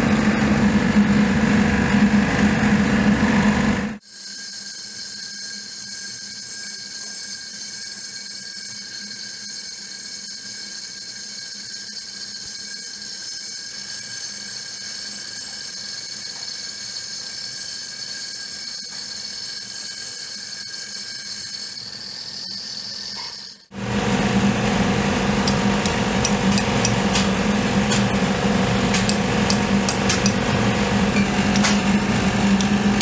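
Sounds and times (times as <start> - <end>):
angle grinder cutting brick: 4.0 - 33.0.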